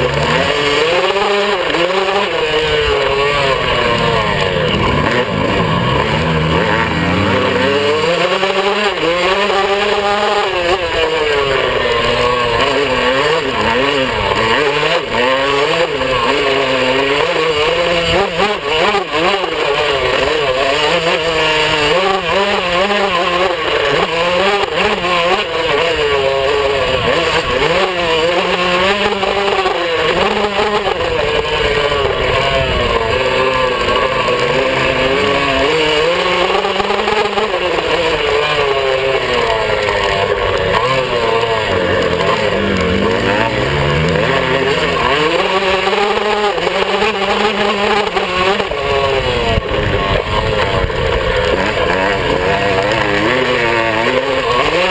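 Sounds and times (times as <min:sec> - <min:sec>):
dirt bike engine revving: 0:00.0 - 0:54.9.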